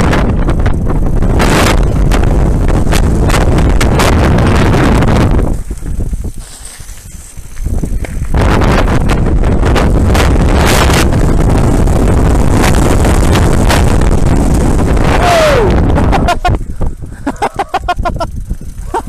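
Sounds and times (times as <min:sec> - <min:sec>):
wind buffeting microphone: 0:00.0 - 0:19.0
bike clattering over rocks: 0:02.1 - 0:08.9
tyres crunching over loose slate: 0:05.4 - 0:08.6.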